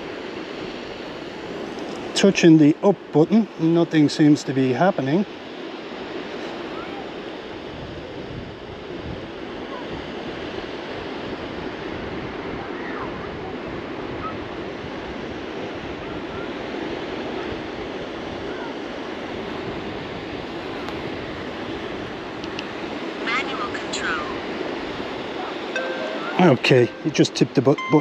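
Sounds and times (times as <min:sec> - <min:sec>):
surf washing on beach: 0:00.0 - 0:28.0
wind buffeting microphone: 0:06.8 - 0:16.7.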